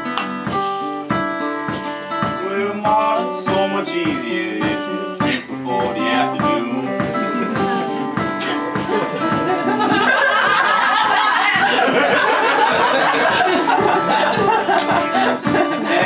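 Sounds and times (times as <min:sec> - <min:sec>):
acoustic guitar strumming: 0:00.0 - 0:16.0
stomped beat: 0:00.0 - 0:16.0
audience laughter: 0:07.4 - 0:16.0.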